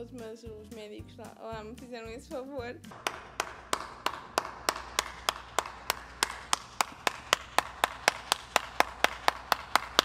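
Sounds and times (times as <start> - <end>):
person clapping hands: 2.9 - 10.0.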